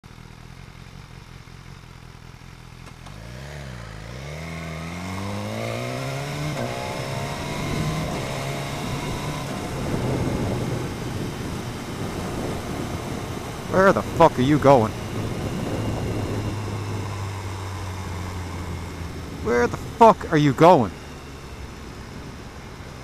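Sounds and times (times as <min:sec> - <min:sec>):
motorcycle engine revving: 0:00.2 - 0:23.0
wind noise: 0:06.7 - 0:20.0.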